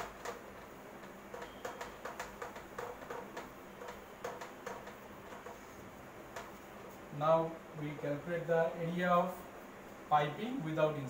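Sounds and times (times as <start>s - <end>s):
cloth wiping a whiteboard: 5.3s - 5.9s.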